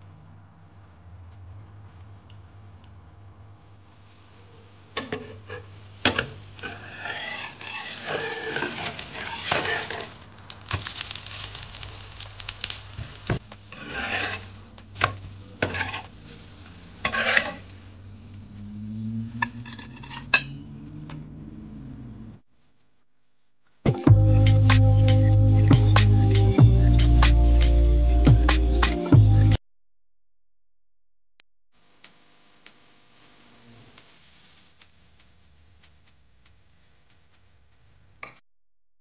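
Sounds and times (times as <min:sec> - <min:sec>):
metal spatula scraping frying pan: 0:05.0 - 0:10.2, 0:13.7 - 0:17.9, 0:19.4 - 0:20.6.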